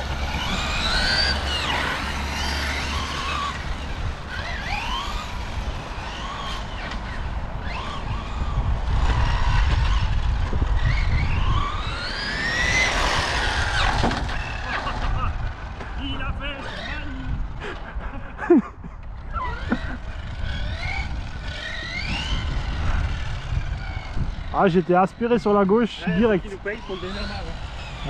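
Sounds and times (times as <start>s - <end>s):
electric motors whining: 0.0s - 18.1s, 19.0s - 28.0s.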